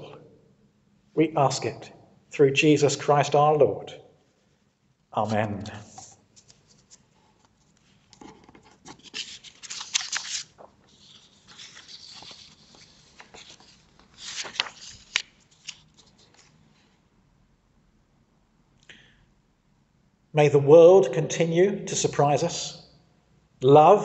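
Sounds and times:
paper sheets rustling: 5.2s - 16.9s.

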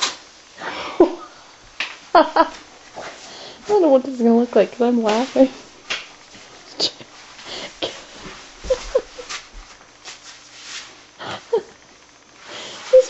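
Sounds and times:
suppressed laughter: 2.1s - 2.6s, 8.6s - 9.4s.

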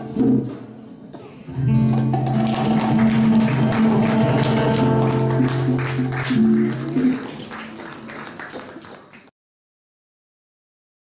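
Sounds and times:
nylon-string guitar: 0.0s - 8.1s
hand percussion: 1.6s - 7.5s.

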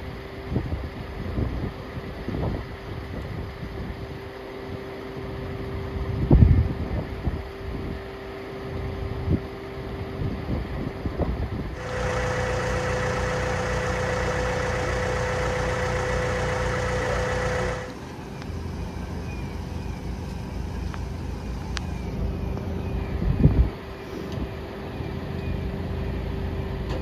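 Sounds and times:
vehicle engines idling: 11.6s - 27.0s.

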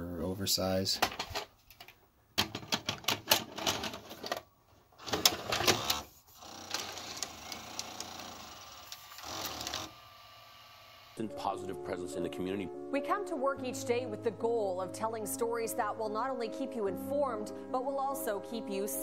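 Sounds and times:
motor and pulleys whirring: 5.1s - 11.2s.

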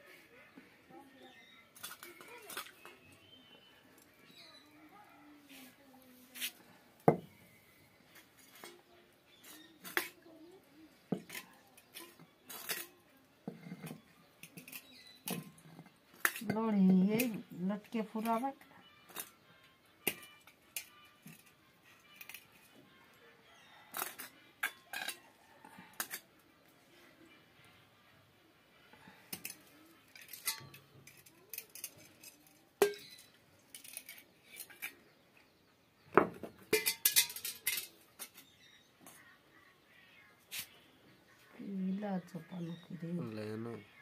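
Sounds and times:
stone clinking against metal bowl: 30.2s - 34.9s, 36.7s - 38.3s.

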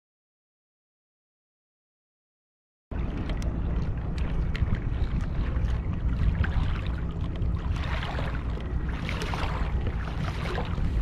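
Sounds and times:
water splashing against kayak hull: 2.9s - 11.0s
wind noise on microphone: 2.9s - 11.0s.

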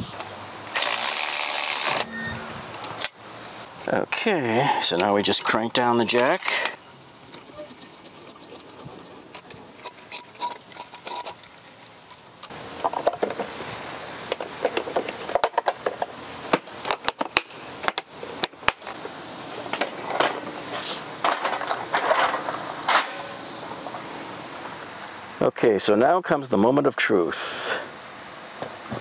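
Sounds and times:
scissor jack cranking with clicks: 0.8s - 2.2s
tools and plastic gear rattling: 7.3s - 12.2s.

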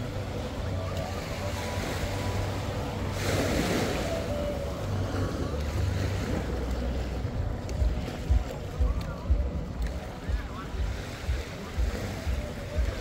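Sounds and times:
waves washing onto beach: 0.0s - 13.0s
wind on microphone: 0.0s - 13.0s.

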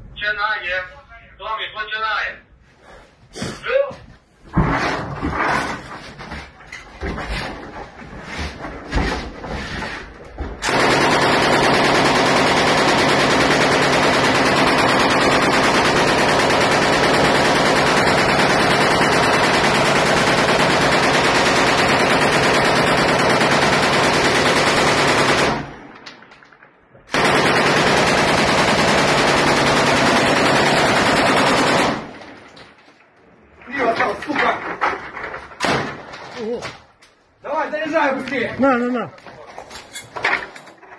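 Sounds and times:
machine gun firing bursts: 10.6s - 25.8s, 27.1s - 32.3s.

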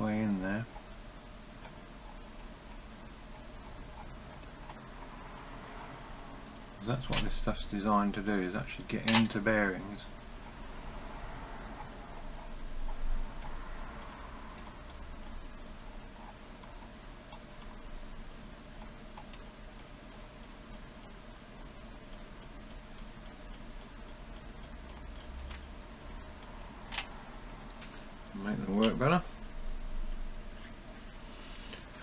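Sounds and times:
low steady hum: 0.0s - 32.0s
screwdriver ticking and scraping metal: 8.8s - 9.5s, 11.8s - 27.1s.

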